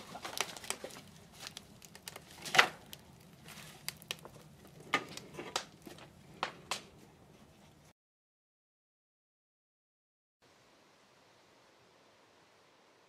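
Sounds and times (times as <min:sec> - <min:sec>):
wood knocking in firebox: 0:00.0 - 0:03.0, 0:03.9 - 0:06.9
wood fire crackling and popping: 0:00.0 - 0:07.2.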